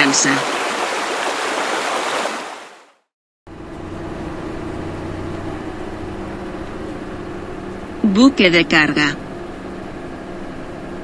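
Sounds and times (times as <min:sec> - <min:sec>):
sea wash: 0:00.0 - 0:03.0
rushing water: 0:00.0 - 0:03.1
ship engine droning: 0:03.5 - 0:11.0.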